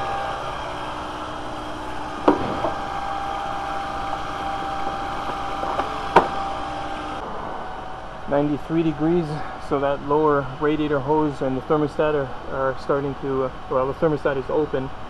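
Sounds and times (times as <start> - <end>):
car engine idling: 0.0 - 14.8
sharp knocks: 2.2 - 3.0, 4.6 - 6.5.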